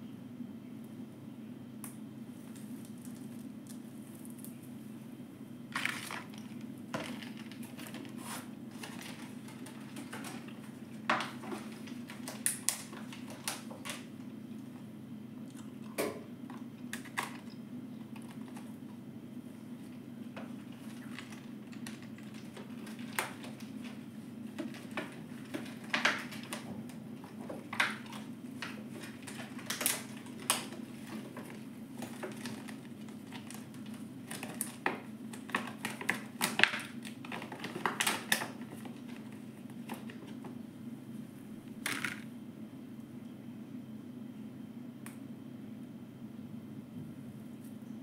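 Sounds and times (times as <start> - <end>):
steady low hum: 0.0 - 48.0
plastic tray crackling and clicking: 5.8 - 14.1, 20.4 - 40.4.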